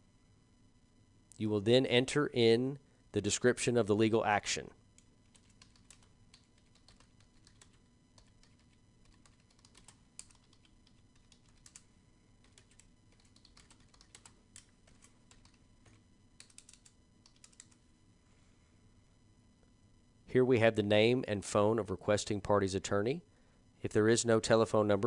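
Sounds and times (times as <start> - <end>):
faint keyboard typing: 4.9 - 17.9.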